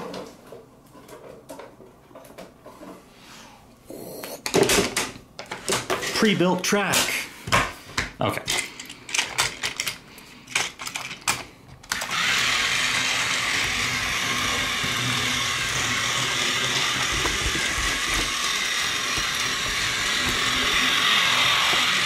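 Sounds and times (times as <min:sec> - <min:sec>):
toy train on plastic track clicks: 0:08.5 - 0:22.0
toy train motor whirring: 0:11.8 - 0:22.0.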